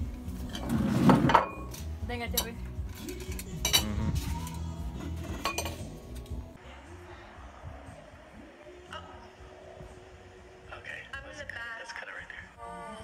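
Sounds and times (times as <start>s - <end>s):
plates and cutlery clinking: 0.5s - 6.2s.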